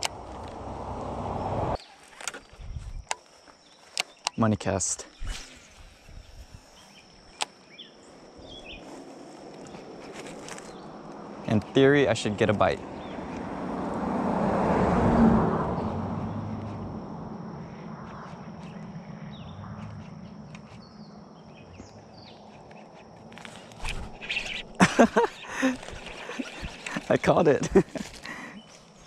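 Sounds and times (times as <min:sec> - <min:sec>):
wind gust on microphone: 0:05.2 - 0:06.8
fishing reel noise: 0:23.3 - 0:24.8, 0:25.6 - 0:27.2.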